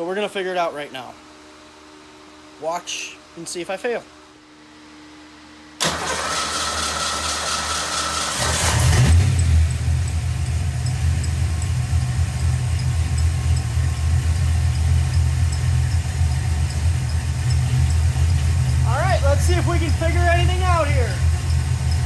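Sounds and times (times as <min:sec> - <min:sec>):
starter motor cranking: 0:05.8 - 0:22.0
car engine revving and idling: 0:06.4 - 0:22.0.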